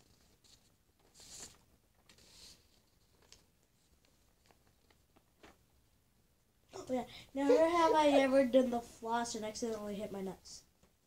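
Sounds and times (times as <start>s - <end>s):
paper signs rustling: 0.0s - 5.6s.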